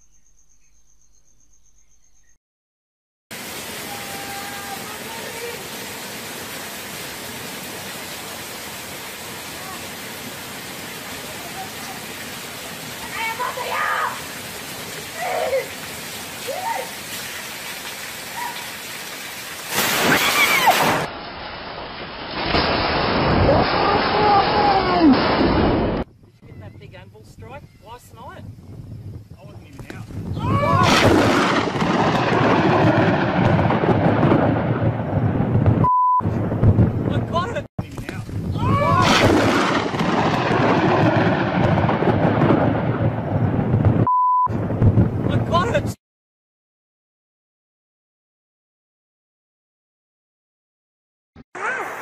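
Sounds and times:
heavy rain hissing: 3.3 - 26.0, 37.1 - 42.9
voice crying out: 3.8 - 5.6, 15.1 - 15.8, 16.4 - 17.0, 20.1 - 21.0, 23.5 - 25.2, 30.4 - 31.1, 38.6 - 39.3, 51.6 - 52.0
thunderclap and rolling rumble: 19.8 - 46.0
short cry: 30.4 - 31.0.

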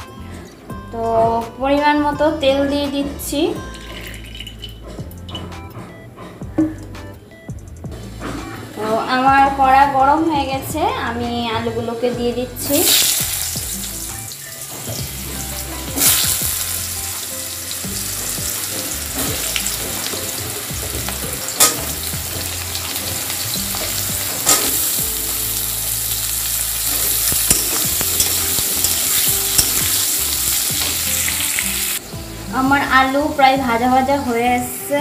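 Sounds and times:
potatoes sizzling in oil: 12.6 - 34.9
metal spatula scraping pan: 26.8 - 31.3.

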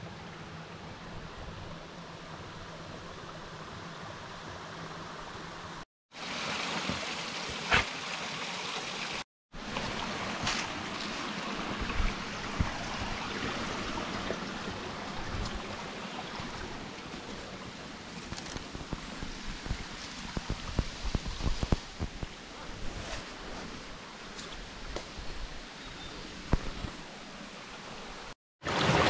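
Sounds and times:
creek running over rocks: 6.1 - 22.6, 26.3 - 29.0.

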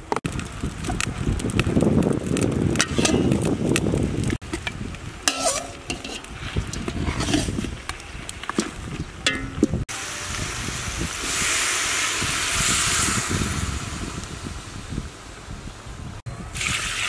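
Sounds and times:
ladle knocking and scraping pot: 2.8 - 3.4, 4.5 - 7.7, 8.5 - 9.8
ladle clinking on metal pot: 5.3 - 7.4, 9.2 - 9.7.

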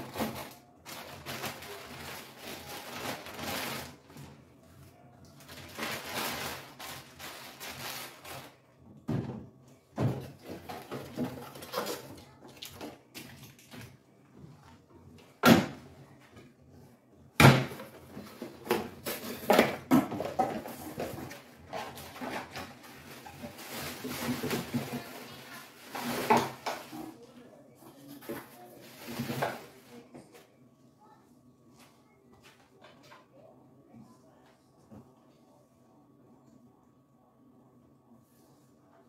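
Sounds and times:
packages rustling: 0.0 - 4.4, 5.3 - 8.7, 18.0 - 27.0.

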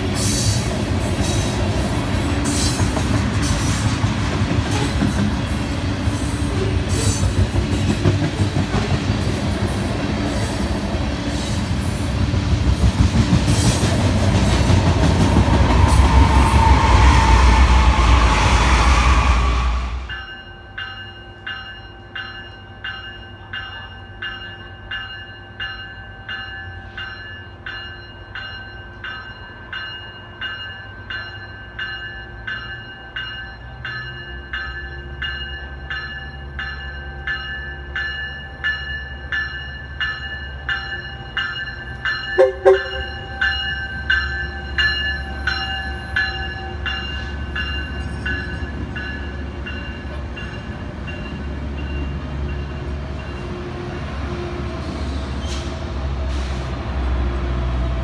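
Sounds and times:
train rumble: 0.0 - 21.0, 27.1 - 58.0
train bell ringing: 20.0 - 54.0
train horn toots: 42.4 - 43.4.

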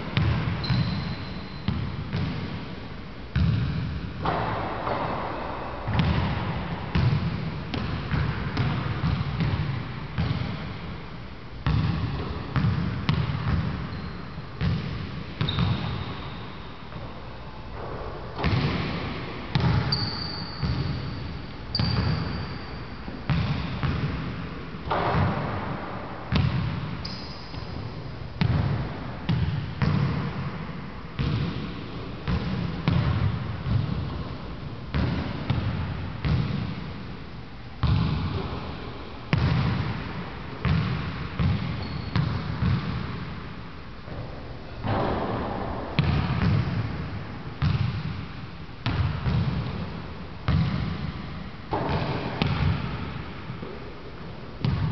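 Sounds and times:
basketball bouncing on hardwood: 5.9 - 10.6, 11.6 - 13.8, 23.3 - 24.3, 26.3 - 26.9, 40.6 - 43.2, 47.6 - 48.2, 54.6 - 54.9.

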